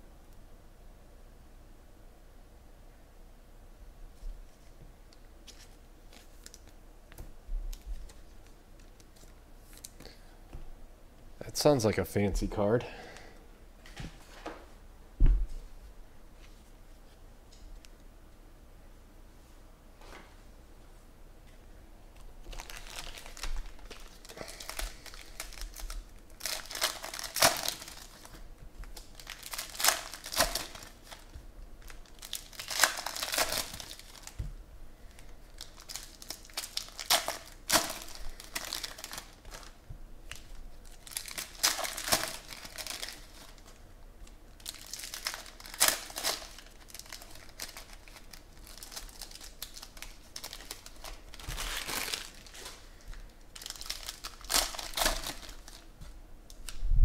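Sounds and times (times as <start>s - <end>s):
foil wrappers tearing and crinkling: 22.4s - 34.4s, 35.1s - 55.9s.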